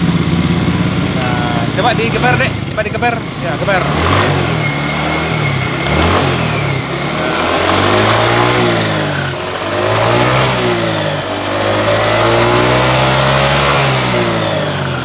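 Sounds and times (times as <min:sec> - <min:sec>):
scooter engine revving: 0:00.0 - 0:15.0.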